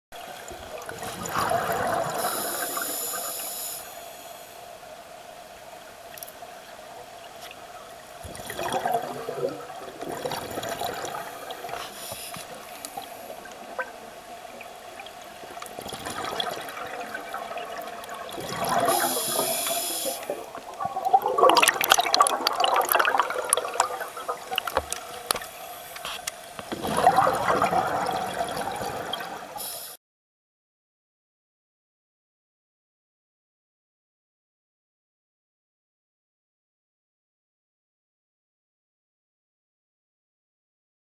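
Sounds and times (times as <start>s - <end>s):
underwater exhaust bubbles: 0.2s - 4.4s, 8.0s - 29.8s
faint steady hum: 0.2s - 30.0s.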